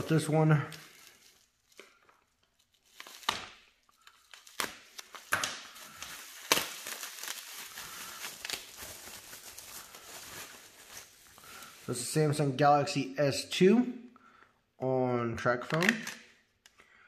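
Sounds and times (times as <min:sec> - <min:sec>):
bubble wrap crackles: 0:00.0 - 0:12.6
bubble wrap crinkling and rustling: 0:00.0 - 0:12.6.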